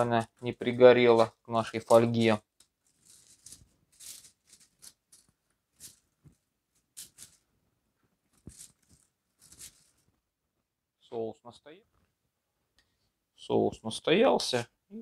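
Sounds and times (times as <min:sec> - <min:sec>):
aluminium foil crinkling: 0:01.1 - 0:06.2, 0:06.8 - 0:07.4, 0:08.3 - 0:10.1.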